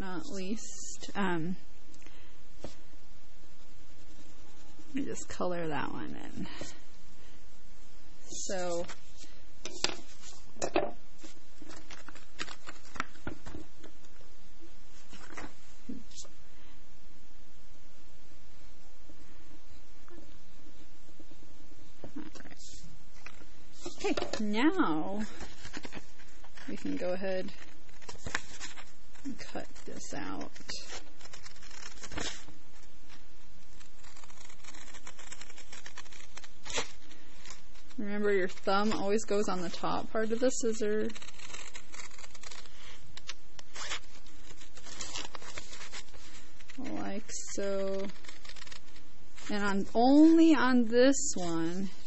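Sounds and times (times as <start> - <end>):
paper rustling: 8.6 - 13.9, 15.0 - 16.3, 25.2 - 50.5
scissors snipping paper: 26.6 - 32.5, 33.6 - 49.7.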